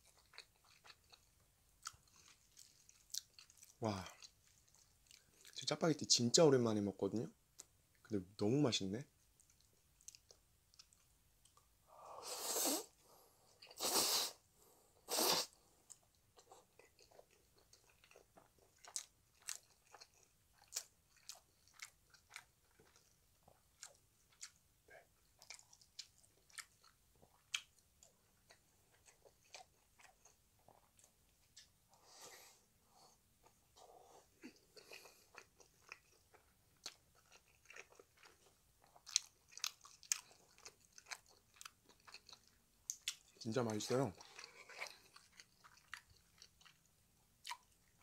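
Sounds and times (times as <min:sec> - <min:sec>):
wet chewing with smacking: 0:00.0 - 0:05.6, 0:15.9 - 0:24.6, 0:25.2 - 0:31.8, 0:34.4 - 0:48.0
loud noodle slurps: 0:12.2 - 0:12.9, 0:13.7 - 0:14.4, 0:15.1 - 0:15.6.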